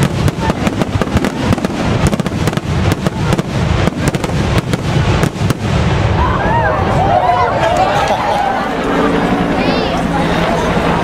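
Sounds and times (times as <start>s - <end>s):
fireworks bursting: 0.0s - 7.2s
continuous low rumble: 0.0s - 11.0s.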